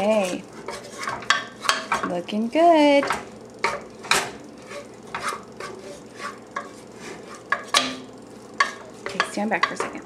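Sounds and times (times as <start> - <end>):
spatula scraping a pot: 0.0 - 2.1, 3.6 - 8.0, 8.6 - 10.0.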